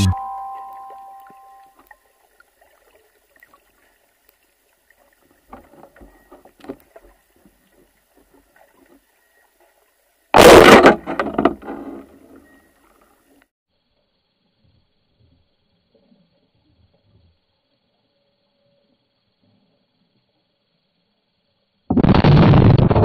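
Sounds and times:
faint knocks and crackles: 5.1 - 9.7.

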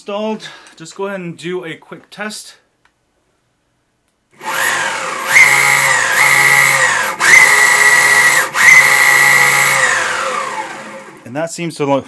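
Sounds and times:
electric motors high whine: 4.4 - 11.2.

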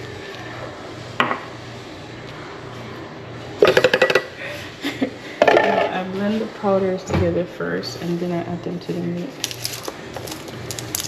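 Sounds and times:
spice jar rattling: 9.4 - 11.0.

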